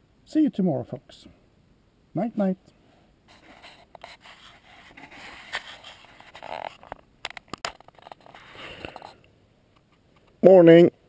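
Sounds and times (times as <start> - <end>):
sleeping bag rustling and scraping: 3.3 - 7.0, 7.7 - 9.2.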